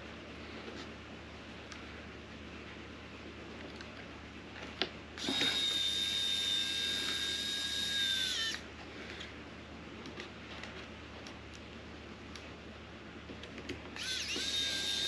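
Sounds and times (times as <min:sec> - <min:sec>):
electric screwdriver whine: 0:05.2 - 0:08.6, 0:14.0 - 0:15.0.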